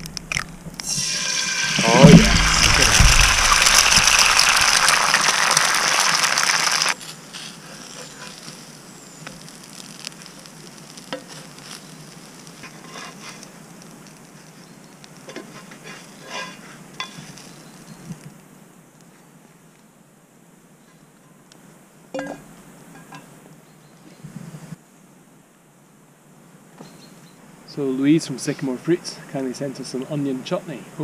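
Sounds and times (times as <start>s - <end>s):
food sizzling in hot oil: 0.8s - 14.2s
spatula scraping pan: 12.6s - 13.4s, 15.3s - 17.2s.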